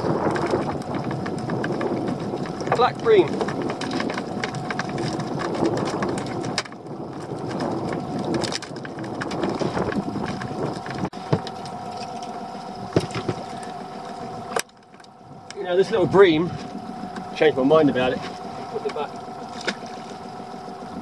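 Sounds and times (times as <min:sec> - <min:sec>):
knocks and clatter on plastic bucket: 0:00.0 - 0:11.6, 0:12.9 - 0:13.7
boat engine idling: 0:00.0 - 0:21.0.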